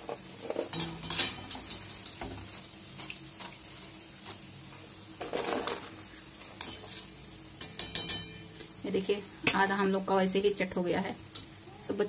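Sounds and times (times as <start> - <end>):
food deep-frying in hot oil: 0.0 - 12.0
wire strainer clinking on pan: 0.6 - 2.6, 6.6 - 8.8.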